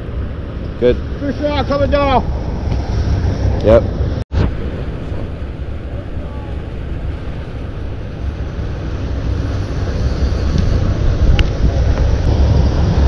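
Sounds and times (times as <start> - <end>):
wind rumble on microphone: 0.0 - 13.0
river water rushing: 4.5 - 13.0.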